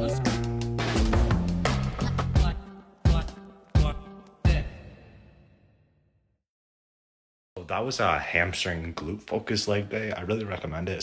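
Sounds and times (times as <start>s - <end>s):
background music with bass line: 0.0s - 4.9s.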